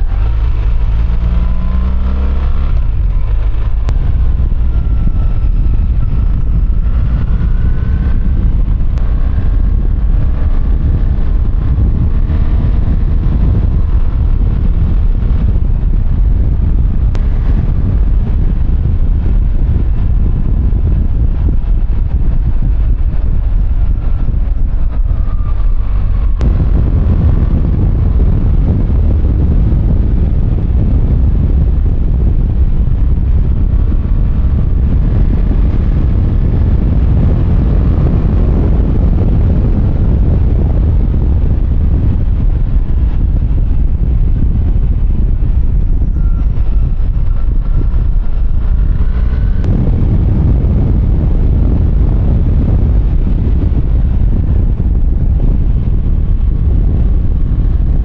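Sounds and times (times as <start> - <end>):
motorcycle engine: 0.0 - 58.0
wind rumbling over microphone: 0.0 - 58.0.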